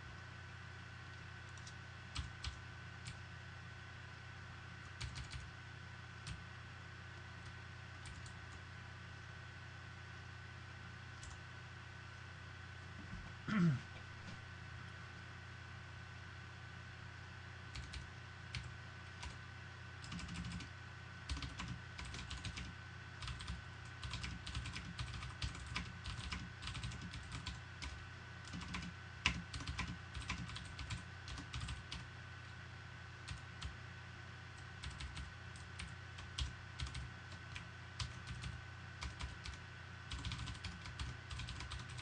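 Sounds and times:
faint hum with high tone: 0:00.0 - 0:42.0
typing on computer keyboard: 0:01.5 - 0:03.2, 0:05.0 - 0:05.5, 0:08.0 - 0:08.4, 0:17.7 - 0:19.4, 0:20.0 - 0:20.7, 0:21.3 - 0:32.1, 0:34.8 - 0:42.0.

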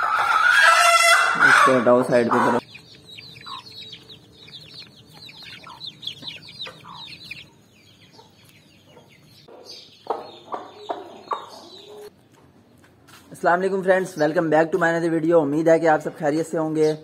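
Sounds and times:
hen clucking: 0:00.0 - 0:12.1
chicks peeping: 0:00.0 - 0:12.2.

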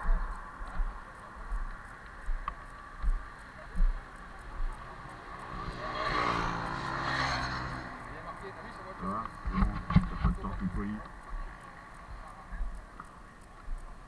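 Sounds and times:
vehicle passing: 0:02.7 - 0:12.5.

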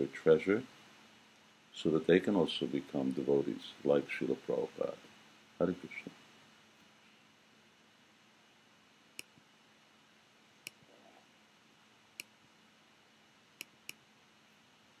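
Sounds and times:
faint sharp clicks: 0:09.2 - 0:09.4.

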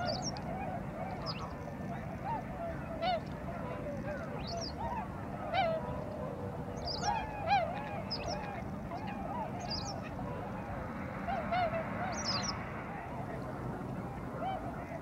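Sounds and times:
thin high-pitched bird calls: 0:00.0 - 0:00.4, 0:01.1 - 0:01.6, 0:04.1 - 0:06.2, 0:06.8 - 0:10.1, 0:11.3 - 0:12.6
waterbirds calling: 0:00.0 - 0:15.0.

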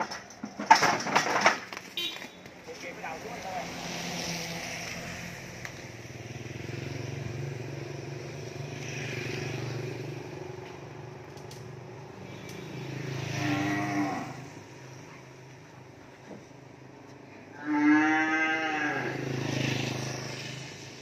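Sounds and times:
calves mooing: 0:13.3 - 0:14.5, 0:17.5 - 0:19.2.

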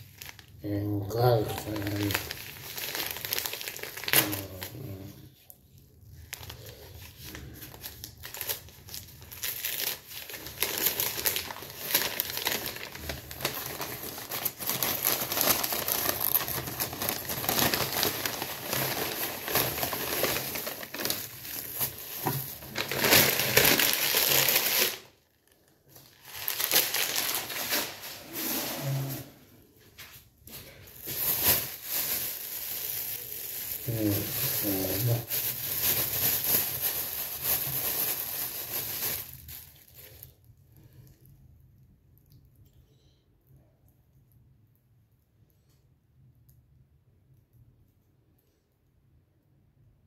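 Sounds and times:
bag crinkling and rustling: 0:00.0 - 0:00.6, 0:01.3 - 0:05.1, 0:05.7 - 0:29.2, 0:29.8 - 0:40.4.

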